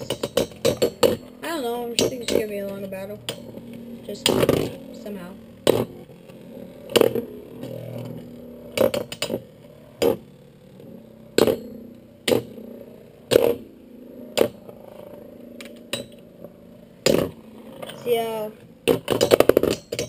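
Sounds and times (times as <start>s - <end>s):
spinning tops whirring: 0.0s - 20.0s.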